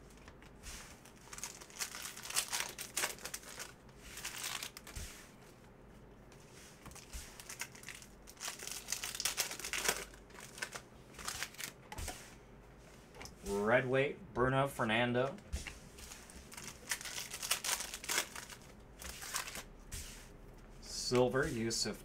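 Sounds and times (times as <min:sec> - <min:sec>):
cards being handled: 0:00.0 - 0:05.6, 0:06.4 - 0:12.2, 0:15.3 - 0:21.5
foil wrapper crinkling: 0:00.1 - 0:05.0, 0:06.9 - 0:11.8, 0:16.0 - 0:19.7.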